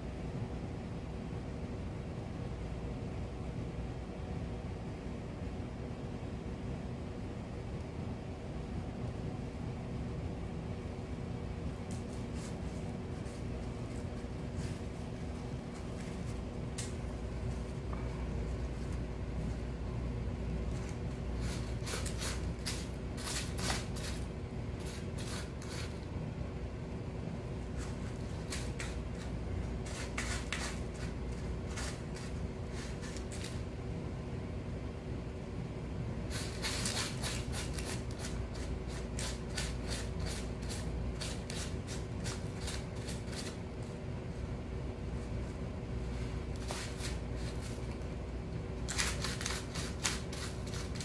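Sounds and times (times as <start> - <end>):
kitten scratching litter in foil pan: 11.7 - 19.8, 20.6 - 26.2, 27.5 - 33.8, 36.2 - 51.0.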